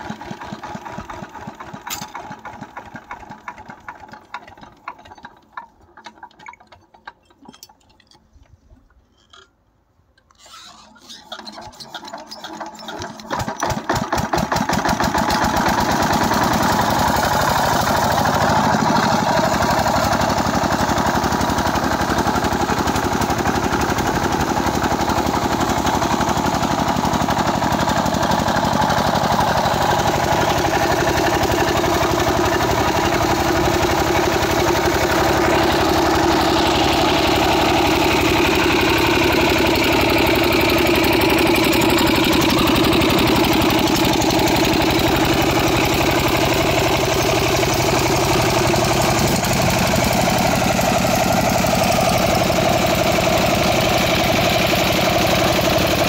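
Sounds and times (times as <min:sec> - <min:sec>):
diesel engine chugging: 0:11.4 - 0:56.0.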